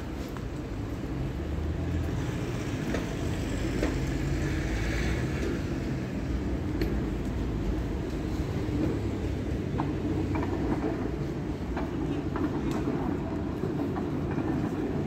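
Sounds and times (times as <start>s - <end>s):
passing vehicles rumbling: 0.0s - 15.0s.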